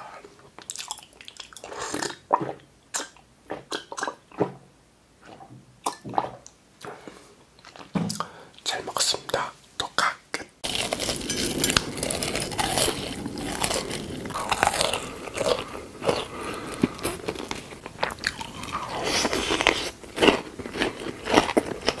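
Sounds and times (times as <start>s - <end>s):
crunchy biting and chewing: 10.6s - 22.0s.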